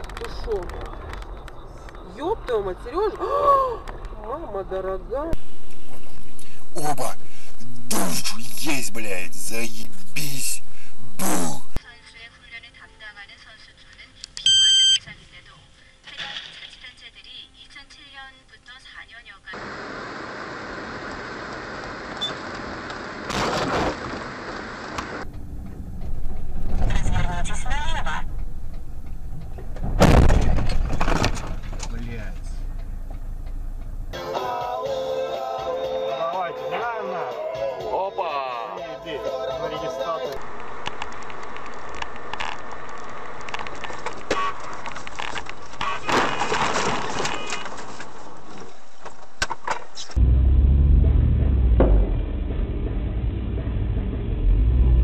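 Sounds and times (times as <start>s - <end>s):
car road and wind noise: 0.0s - 6.7s, 19.6s - 34.2s, 40.4s - 45.8s, 48.0s - 55.0s
steady vehicle noise: 0.0s - 11.8s, 19.5s - 34.2s, 40.4s - 55.0s.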